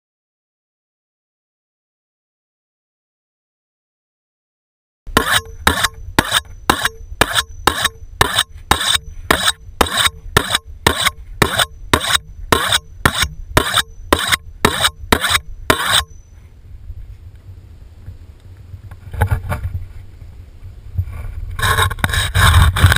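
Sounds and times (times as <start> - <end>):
knife sharpening strokes: 5.2 - 16.3.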